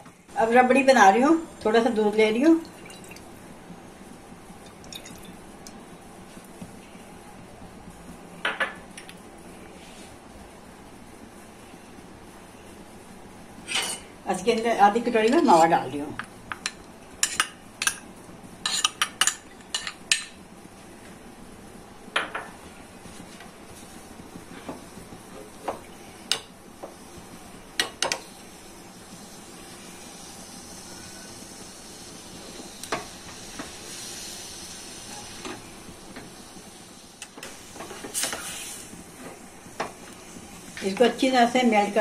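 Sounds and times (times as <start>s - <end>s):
faint hiss from heating pan: 11.2s - 42.0s.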